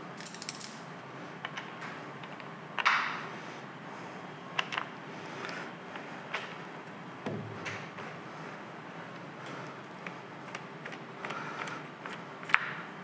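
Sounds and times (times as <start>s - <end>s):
ringing metal clink: 0.2s - 0.9s.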